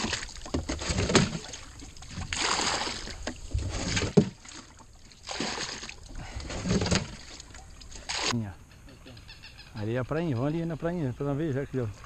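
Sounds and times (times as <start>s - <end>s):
water splashing: 0.0s - 8.4s.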